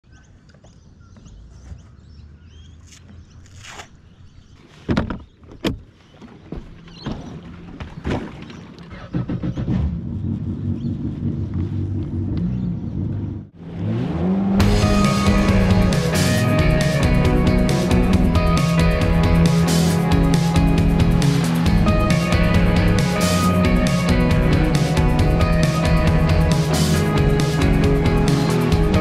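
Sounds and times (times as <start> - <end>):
low hum: 14.3 - 29.0
jet ski engine idling: 14.6 - 29.0.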